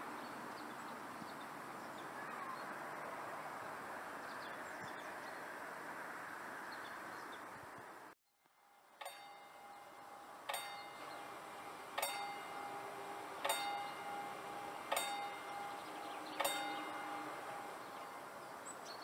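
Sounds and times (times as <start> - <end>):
outdoor background noise: 0.0 - 19.0
faint bird chirps: 0.2 - 2.8
bell ringing: 8.8 - 18.4.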